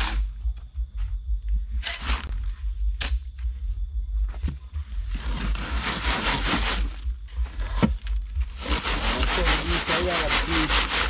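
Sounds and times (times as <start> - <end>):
rough scraping: 0.0 - 0.6, 1.7 - 2.7, 4.9 - 11.0
steady low rumble: 0.0 - 11.0.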